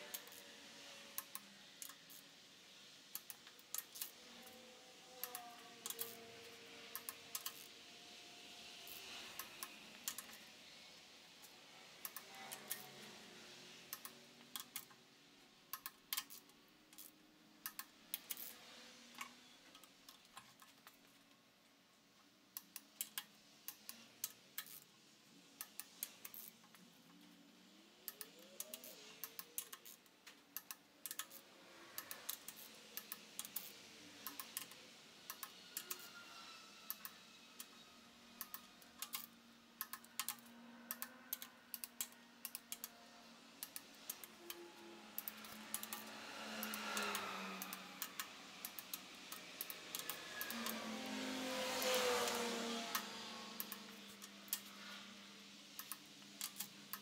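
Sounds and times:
torque wrench ratchet clicking: 0:00.1 - 0:00.5, 0:03.1 - 0:04.6, 0:05.2 - 0:06.2, 0:06.9 - 0:07.7, 0:12.0 - 0:12.9, 0:15.7 - 0:18.6, 0:22.6 - 0:24.9, 0:25.6 - 0:26.6, 0:28.1 - 0:30.0, 0:30.6 - 0:36.2, 0:38.4 - 0:42.9, 0:45.2 - 0:50.8.

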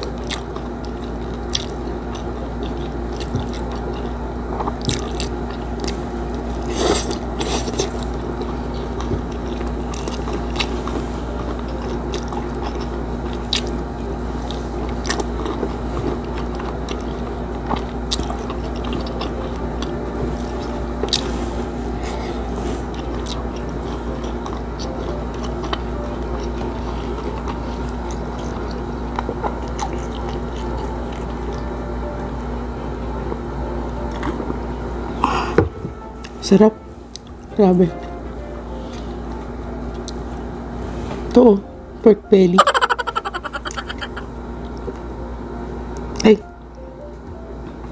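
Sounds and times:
person chewing food: 0:00.0 - 0:31.7, 0:33.9 - 0:34.6, 0:37.1 - 0:37.5, 0:38.7 - 0:40.5, 0:42.6 - 0:45.2
steady low hum: 0:00.0 - 0:47.9.

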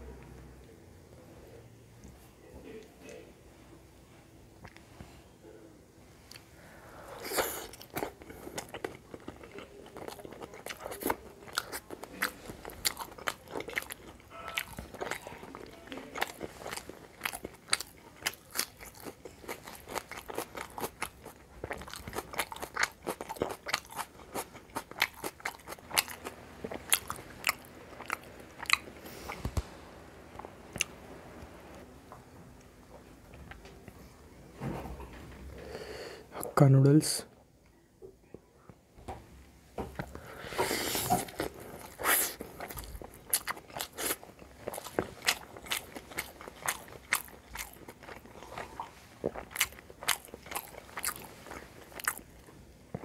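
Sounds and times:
chewing: 0:07.2 - 0:29.6, 0:40.0 - 0:53.0
crunchy food bites: 0:41.2 - 0:53.0.

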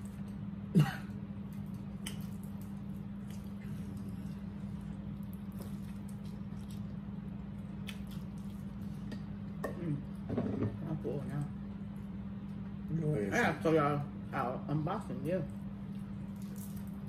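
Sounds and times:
steady low hum: 0:00.0 - 0:17.0
wet chewing and mouth noises: 0:01.4 - 0:10.2, 0:15.5 - 0:17.0.

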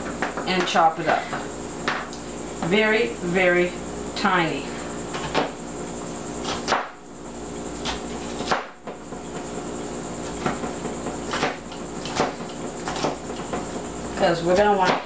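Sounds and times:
knife chopping on plastic board: 0:11.3 - 0:13.7, 0:14.5 - 0:15.0.

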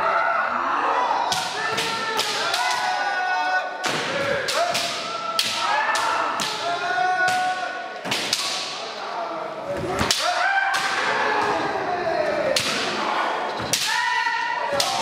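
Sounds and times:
people shouting: 0:00.0 - 0:15.0
bamboo swords clacking: 0:07.2 - 0:08.8.

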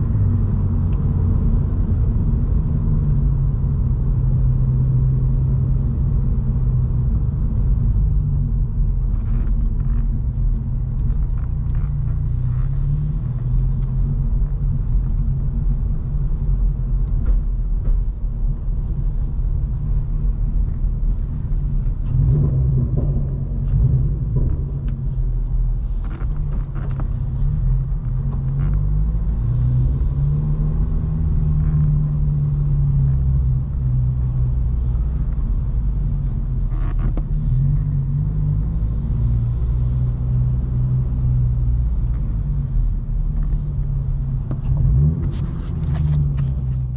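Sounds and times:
car engine and exhaust note: 0:00.0 - 0:46.9.

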